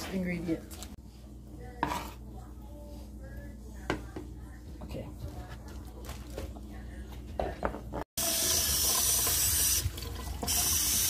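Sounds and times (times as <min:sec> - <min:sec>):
tap water running into sink: 0:08.2 - 0:11.0.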